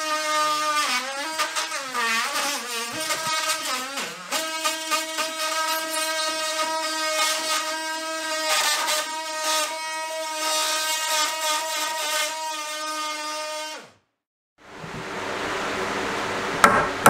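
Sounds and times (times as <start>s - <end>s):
blade rasping into wood: 0.0s - 13.2s
oscillating multi-tool buzzing: 0.0s - 13.9s.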